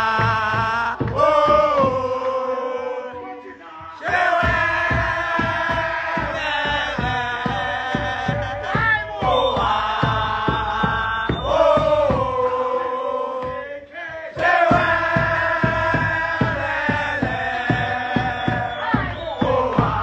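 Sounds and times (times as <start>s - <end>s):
men singing and chanting: 0.0s - 20.0s
steady drum beat: 0.0s - 20.0s.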